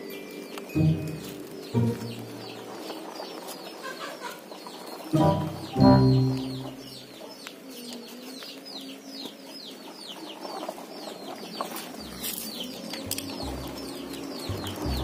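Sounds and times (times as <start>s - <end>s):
bird chirping: 0.0s - 15.0s
low rumbles: 0.8s - 2.8s.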